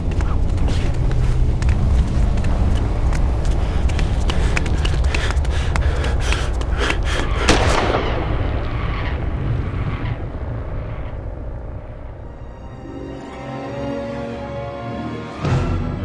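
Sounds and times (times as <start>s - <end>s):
heavy low rumble: 0.0s - 13.0s
rapid gunshots: 7.4s - 9.1s
loud bang: 7.4s - 12.0s.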